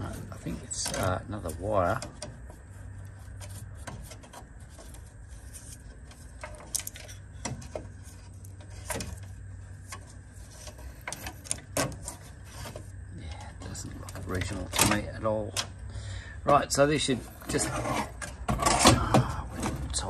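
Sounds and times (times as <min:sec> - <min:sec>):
hands handling wires and connectors: 0:00.0 - 0:15.8
steady low hum: 0:00.0 - 0:20.0.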